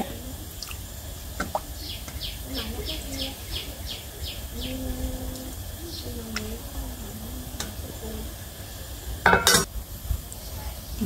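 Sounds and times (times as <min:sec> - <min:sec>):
faint distant voices: 0:00.0 - 0:11.0
metal cookware clank: 0:09.3 - 0:09.7.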